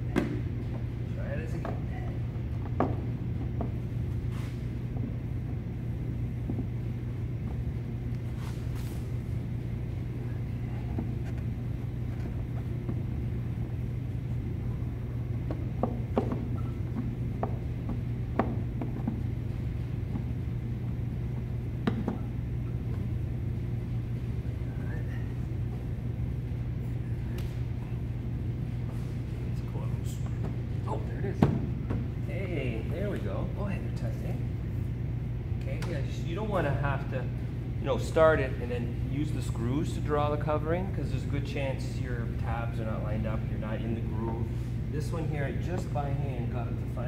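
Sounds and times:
steady low hum: 0.0 - 47.0.

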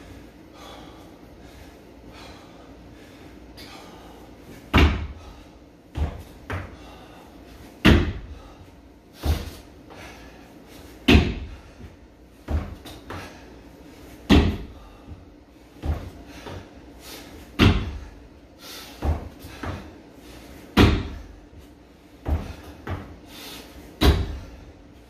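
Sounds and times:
feet thumping on floor: 4.7 - 5.3, 5.9 - 6.8, 7.8 - 8.4, 9.2 - 9.7, 11.0 - 13.4, 14.2 - 16.7, 17.5 - 18.1, 19.0 - 20.0, 20.7 - 23.2, 24.0 - 24.5
feet thudding on wooden box: 4.7 - 6.9, 7.8 - 8.5, 9.2 - 10.0, 11.0 - 13.4, 14.2 - 16.7, 17.4 - 18.1, 18.9 - 20.0, 20.7 - 23.2, 24.0 - 24.6.

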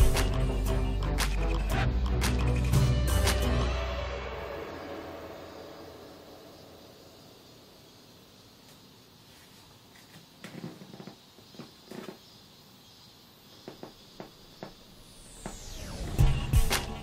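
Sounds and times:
faint steady hiss: 4.5 - 17.0.

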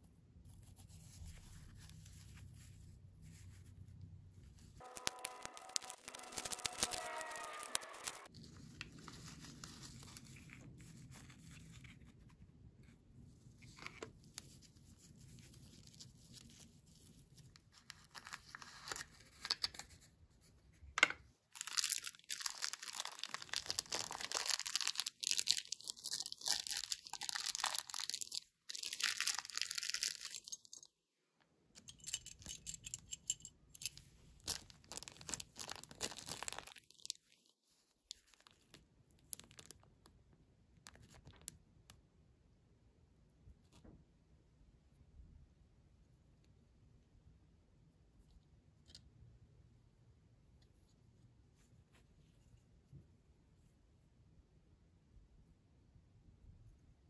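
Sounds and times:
plastic bag crinkling: 4.8 - 8.3, 21.5 - 30.9, 34.4 - 37.5, 38.1 - 39.9.

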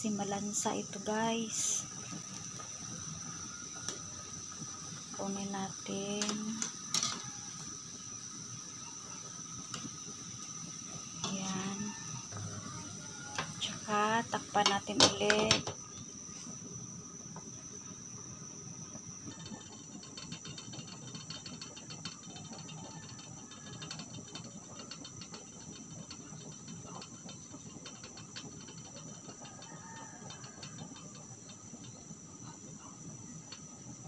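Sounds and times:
fine ticking and crackling: 0.0 - 7.7
soup boiling in a pot: 0.0 - 34.0.

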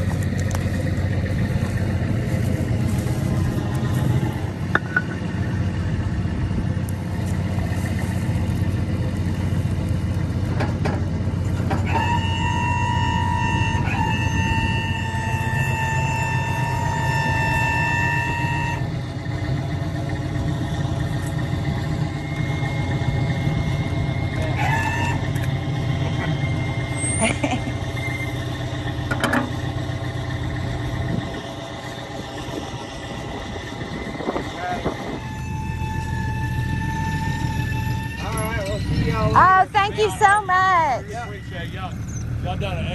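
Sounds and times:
truck engine running: 0.0 - 42.9
high horn tone: 11.7 - 19.3, 20.6 - 27.2, 31.8 - 41.5.

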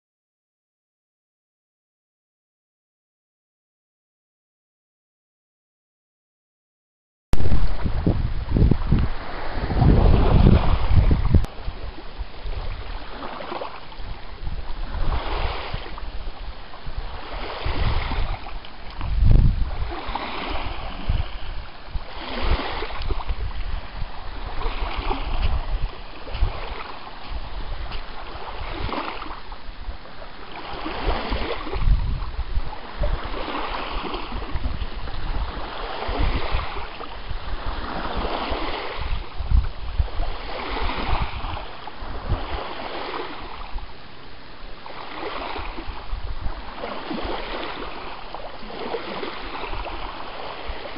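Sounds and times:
lake waves lapping on sand: 7.4 - 50.9
wind gusting on microphone: 7.4 - 50.9.

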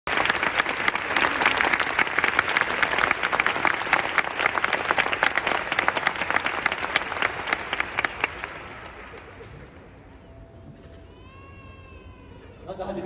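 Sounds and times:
crowd applauding: 0.1 - 10.2.

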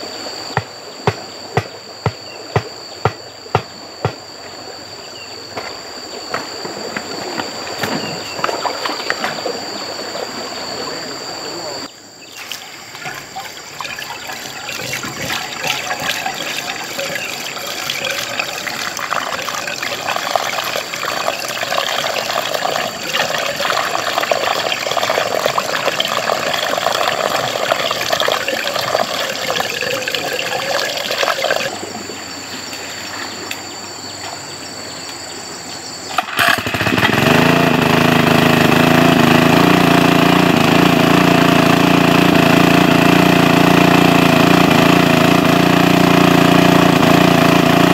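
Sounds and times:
water pump engine running: 12.3 - 32.1, 36.1 - 47.9
water splashing and running: 12.3 - 33.4.

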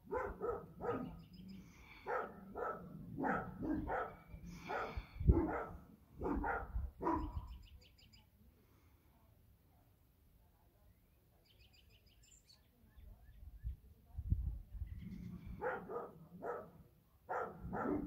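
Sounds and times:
dogs barking: 0.0 - 1.2, 1.9 - 7.4, 15.6 - 18.0.

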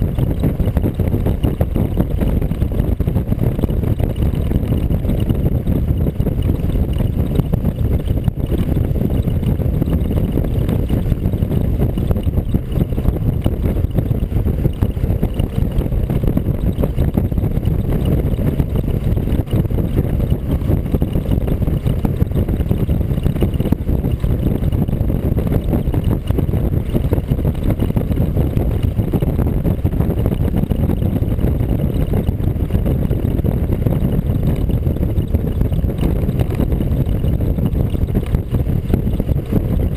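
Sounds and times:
vehicle road noise: 0.0 - 39.9
wind rumble on microphone: 0.0 - 39.9.

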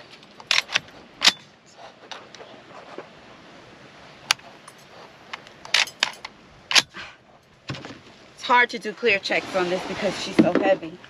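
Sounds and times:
metallic rifle action clicks: 0.3 - 1.5, 4.3 - 7.0.

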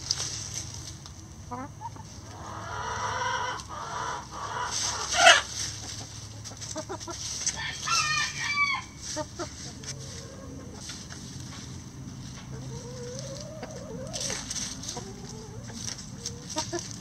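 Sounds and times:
scratching through dry leaves: 0.0 - 1.4, 2.0 - 17.0
chickens clucking: 0.1 - 17.0
rooster crowing: 7.5 - 9.0.

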